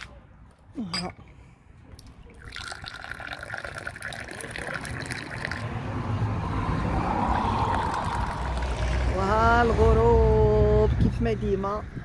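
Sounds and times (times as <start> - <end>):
tea pouring into glass: 2.3 - 5.7, 7.4 - 9.2.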